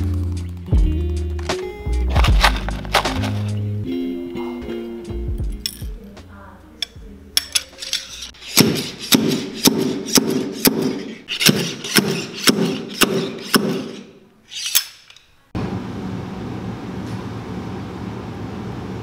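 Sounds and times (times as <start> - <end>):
steel rod striking boot sole: 8.5 - 15.2.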